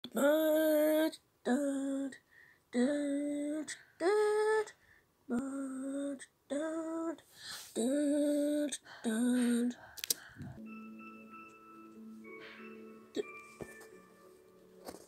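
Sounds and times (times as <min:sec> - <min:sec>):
soft humming voice: 0:00.0 - 0:07.2
slow lullaby melody: 0:10.6 - 0:15.0.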